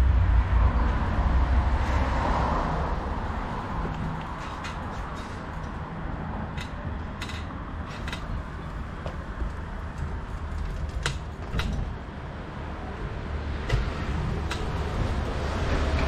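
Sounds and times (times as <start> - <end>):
low rumble: 0.0 - 6.3
bicycle creaking and rattling: 0.9 - 16.0.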